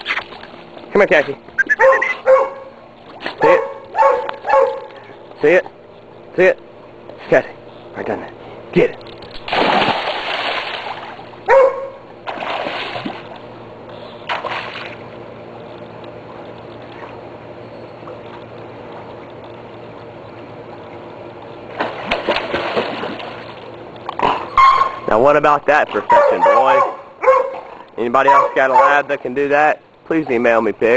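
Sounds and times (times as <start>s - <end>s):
dog splashing into pool: 9.3s - 11.3s, 12.2s - 13.4s, 14.3s - 15.0s, 21.7s - 23.6s
dog swimming splashing: 9.3s - 13.4s, 21.7s - 23.7s.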